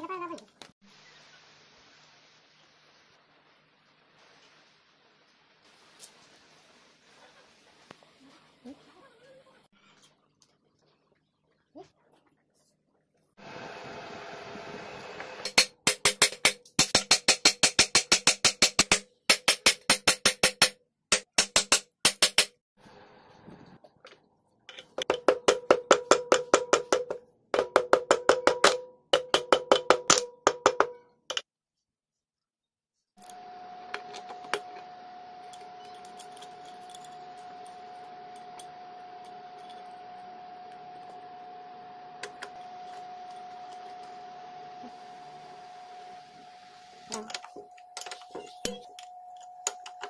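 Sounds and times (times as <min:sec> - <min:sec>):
metal hammer tapping: 0:24.9 - 0:31.4.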